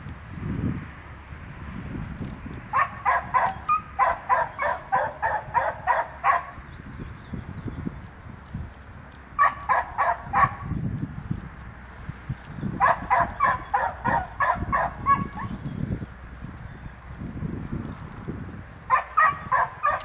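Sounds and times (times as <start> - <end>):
dog barking sharply: 18.9 - 20.0.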